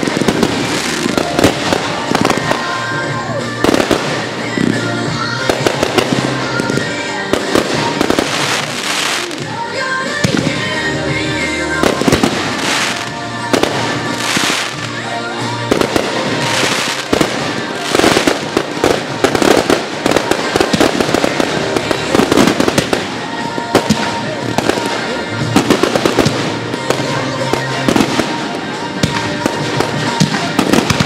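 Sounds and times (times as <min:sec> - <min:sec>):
fireworks bangs and crackle: 0:00.0 - 0:31.0
music playing: 0:00.0 - 0:31.0.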